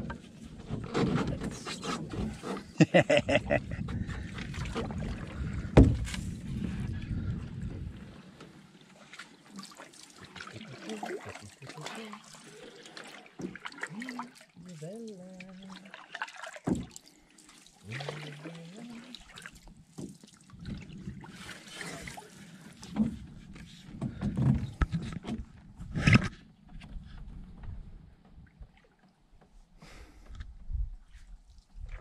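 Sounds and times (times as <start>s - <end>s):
paddle knocking against hull: 0.0s - 9.2s, 16.0s - 17.0s, 19.2s - 21.6s, 22.7s - 28.7s
paddle water splashing and dripping: 0.0s - 25.2s, 28.2s - 29.7s.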